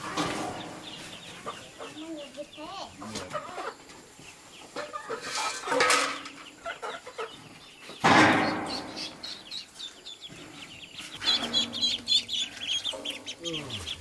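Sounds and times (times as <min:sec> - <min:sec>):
ducklings peeping: 0:00.0 - 0:14.0.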